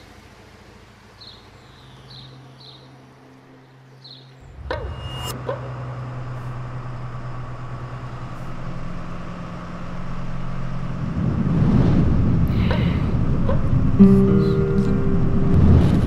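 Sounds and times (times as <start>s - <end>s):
bus engine and road rumble: 0.0s - 16.0s.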